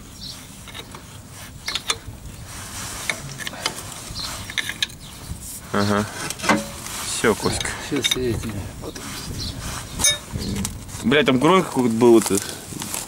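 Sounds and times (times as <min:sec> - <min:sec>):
spanner clicking on metal nuts: 0:01.6 - 0:02.0, 0:04.4 - 0:05.0, 0:07.6 - 0:08.3.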